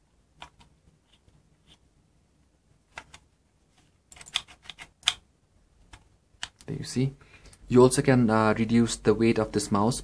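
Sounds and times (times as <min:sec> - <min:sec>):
plastic mouse clicks and taps: 0:02.9 - 0:03.2.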